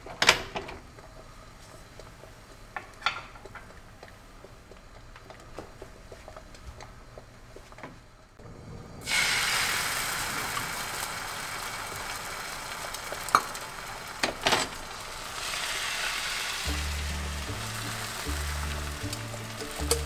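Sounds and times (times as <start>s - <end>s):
batter sizzling in a frying pan: 9.0s - 20.0s
soft music: 16.6s - 20.0s.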